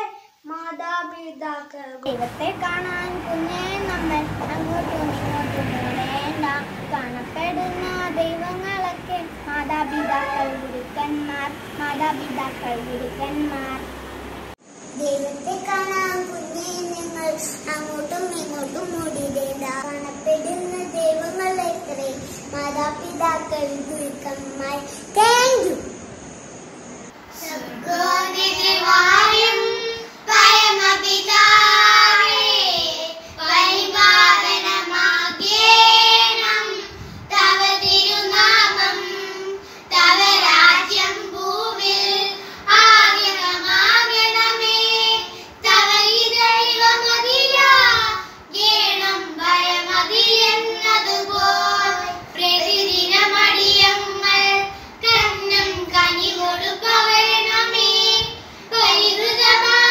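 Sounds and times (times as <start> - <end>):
girls singing in unison: 2.1 - 14.4, 27.3 - 59.9.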